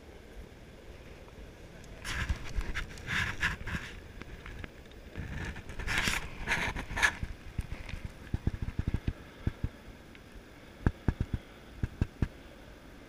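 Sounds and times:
rustling scrape: 0:02.0 - 0:09.2.

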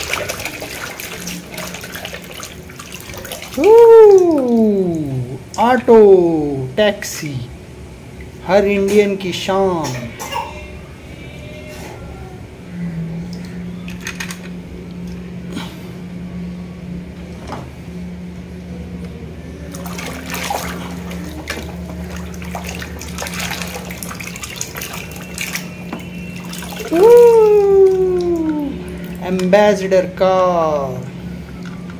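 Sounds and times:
toys splashing in water: 0:00.0 - 0:05.1, 0:19.7 - 0:29.7
steady low hum: 0:00.0 - 0:31.9.

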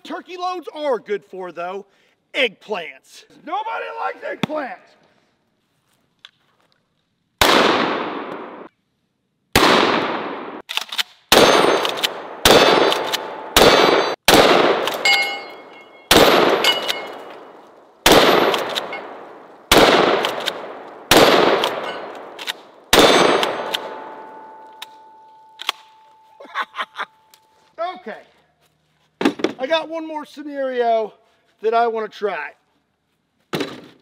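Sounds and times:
shotgun shots echoing: 0:07.4 - 0:08.7, 0:09.6 - 0:10.6, 0:11.3 - 0:26.0
steel plate targets ringing: 0:15.0 - 0:17.5, 0:18.2 - 0:19.2, 0:21.6 - 0:22.2, 0:23.0 - 0:26.4.

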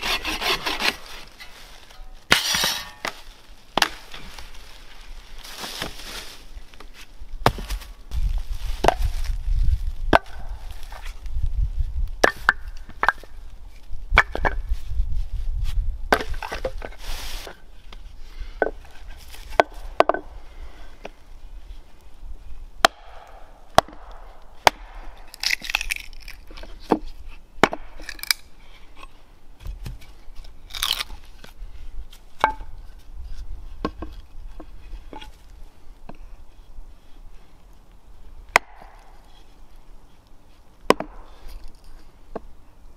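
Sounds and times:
hatchet splitting firewood: 0:00.0 - 0:04.5, 0:06.8 - 0:07.9, 0:10.1 - 0:11.2, 0:12.2 - 0:13.4, 0:18.6 - 0:20.3, 0:22.8 - 0:33.0, 0:38.5 - 0:39.5, 0:40.8 - 0:42.5.

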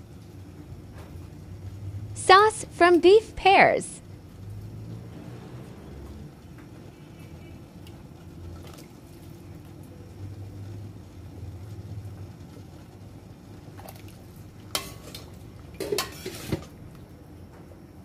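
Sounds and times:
low rumble of pot heating: 0:00.0 - 0:18.0
metal ladle scraping a pot: 0:15.8 - 0:16.6.

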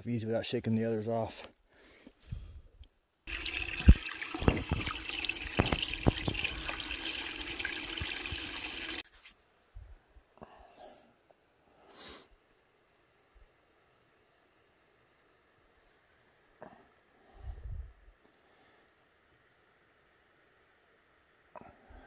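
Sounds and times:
water trickling over rocks: 0:03.3 - 0:09.0.

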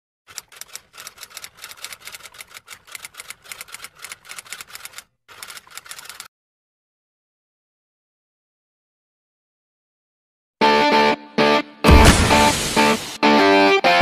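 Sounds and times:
typewriter keys clacking: 0:00.3 - 0:06.3.

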